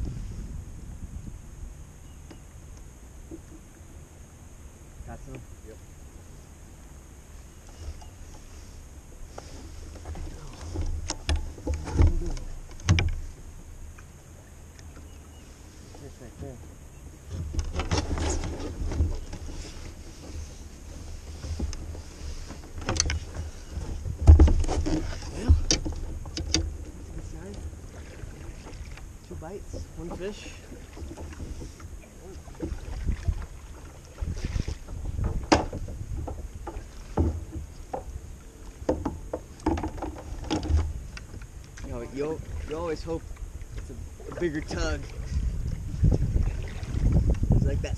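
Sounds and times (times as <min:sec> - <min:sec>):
low steady rumble: 0:00.0 - 0:47.9
paddle knocking against kayak: 0:03.2 - 0:04.0, 0:09.2 - 0:15.4, 0:17.2 - 0:47.6.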